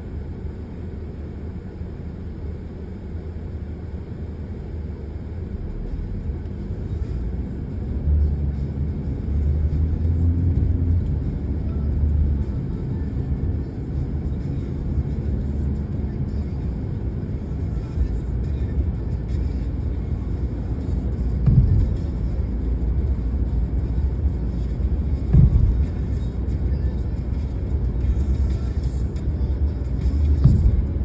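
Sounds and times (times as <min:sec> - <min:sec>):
car road and engine rumble: 0:00.0 - 0:31.0
thumps: 0:21.4 - 0:22.2, 0:25.2 - 0:26.1, 0:30.3 - 0:31.0.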